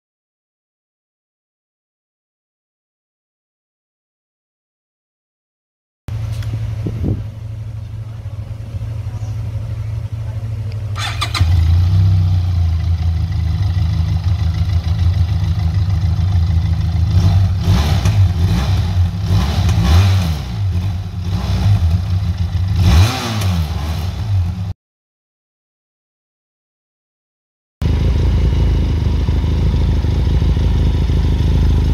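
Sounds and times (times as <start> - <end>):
motorcycle engine idling: 6.1 - 22.8, 27.8 - 31.9
motorcycle throttle blips: 6.1 - 24.7.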